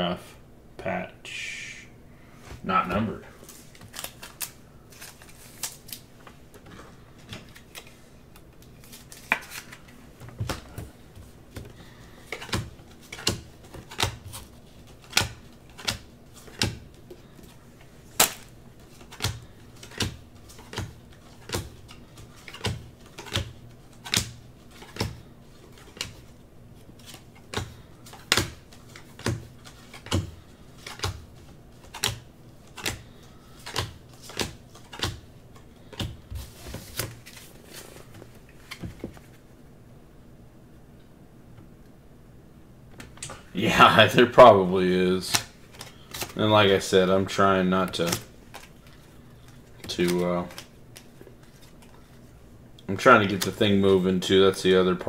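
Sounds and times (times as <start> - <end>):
trading cards flipping clicks: 27.0 - 31.2, 31.8 - 36.2.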